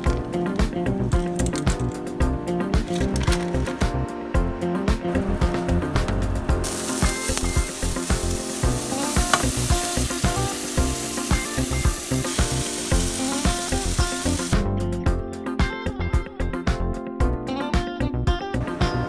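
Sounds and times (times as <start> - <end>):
background music with beat: 0.0 - 19.0
food sizzling in hot oil: 6.6 - 14.6.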